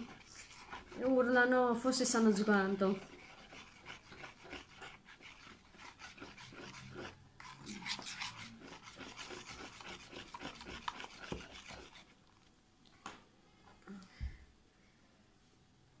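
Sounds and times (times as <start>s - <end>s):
slime being stirred in plastic tub: 0.0s - 12.6s.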